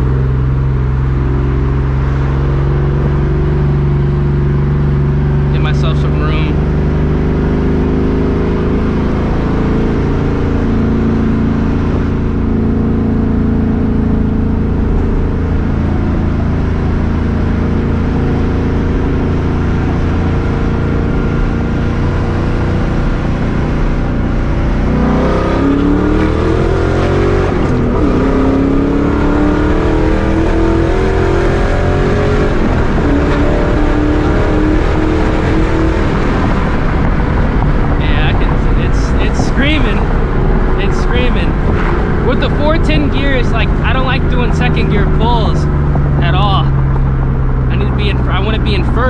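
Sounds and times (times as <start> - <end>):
car engine and exhaust from inside: 0.0 - 49.0.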